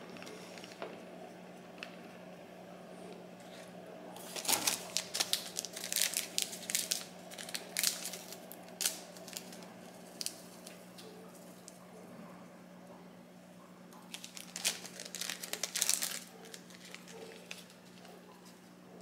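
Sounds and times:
plastic sachets crinkling: 0.0s - 0.9s, 4.2s - 11.8s, 14.0s - 18.6s
sachets tearing open: 4.2s - 10.8s, 14.1s - 18.1s.

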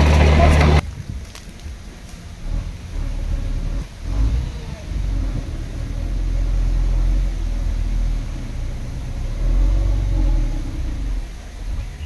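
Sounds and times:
heavy machinery diesel engine: 0.0s - 1.0s, 1.7s - 12.0s.

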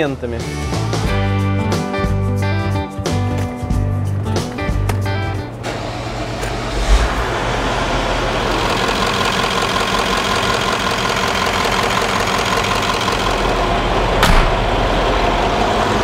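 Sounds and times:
diesel engine starting and idling: 5.4s - 16.0s.

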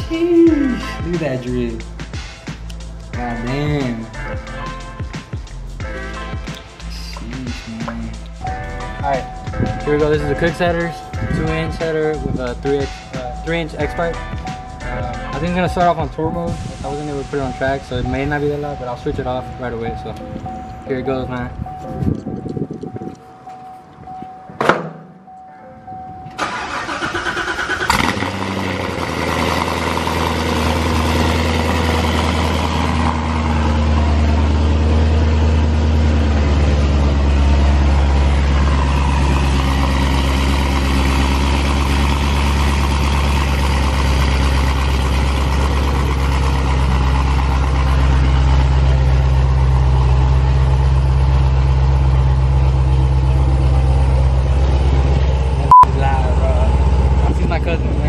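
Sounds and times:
car engine cranking: 24.8s - 55.8s
loud engine idle: 26.4s - 58.0s.

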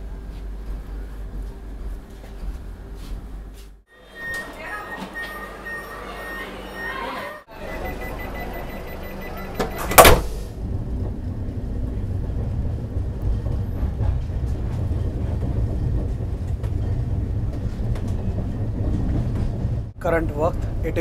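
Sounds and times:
train coach rumbling: 0.0s - 21.0s
sliding door shutting with thud: 9.6s - 10.5s.

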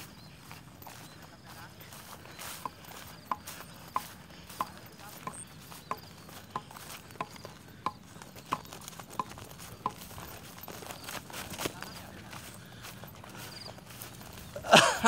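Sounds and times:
footsteps tapping: 0.0s - 15.0s.

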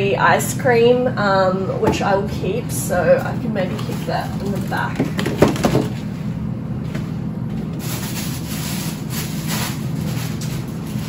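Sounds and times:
freezer low hum: 0.0s - 11.0s
frozen food packets knocking and rustling: 4.4s - 6.0s.

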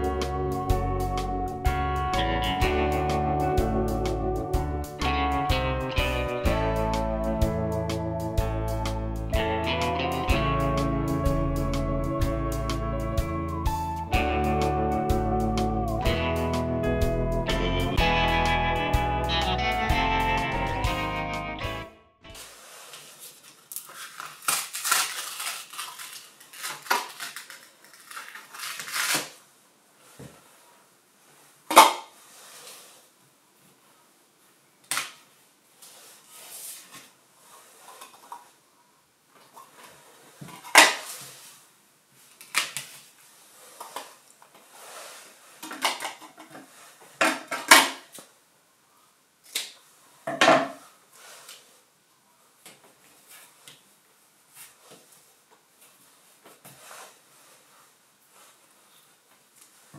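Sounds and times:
board rustling: 35.8s - 38.6s, 55.9s - 59.1s.

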